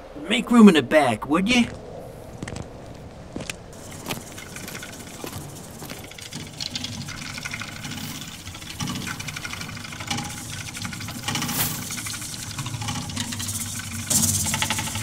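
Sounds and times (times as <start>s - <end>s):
motor clattering: 3.8s - 15.0s.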